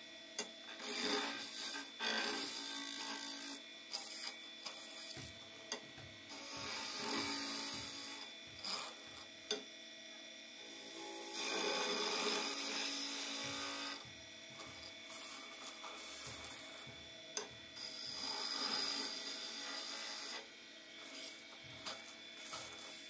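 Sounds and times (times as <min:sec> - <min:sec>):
wood lathe running: 0:00.3 - 0:23.0
chisel scraping hiss on wood: 0:00.7 - 0:05.2, 0:06.3 - 0:09.3.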